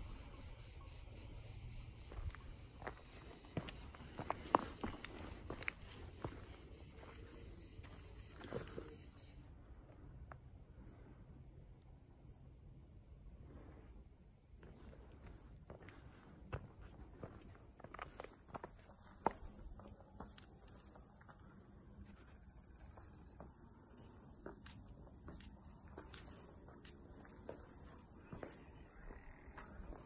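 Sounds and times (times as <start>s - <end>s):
crickets chirping: 0.0s - 30.0s
footsteps on gravel: 2.1s - 9.0s, 14.6s - 30.0s.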